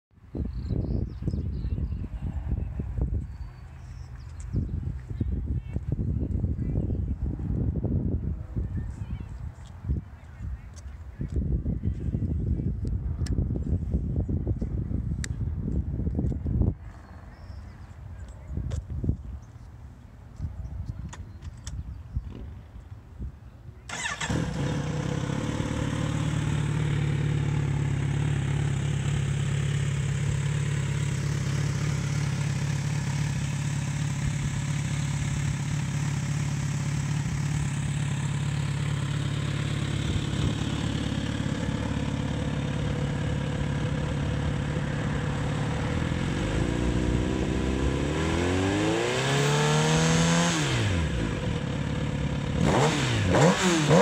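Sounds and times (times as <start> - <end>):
motorcycle engine idling and revving: 23.8 - 54.0.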